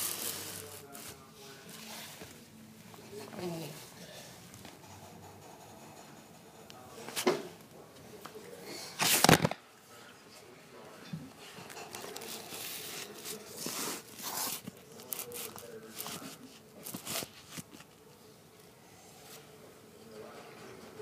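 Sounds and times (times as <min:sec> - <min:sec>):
camcorder handling noise: 0:09.0 - 0:09.6.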